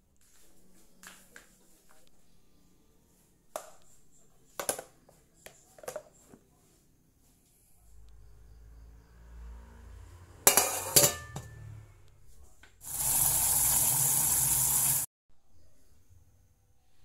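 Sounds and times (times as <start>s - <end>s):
china clinking: 10.5s - 11.6s.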